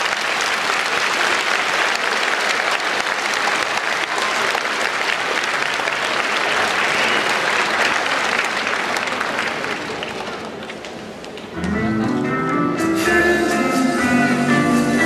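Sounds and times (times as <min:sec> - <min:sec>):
audience applauding: 0:00.0 - 0:11.7.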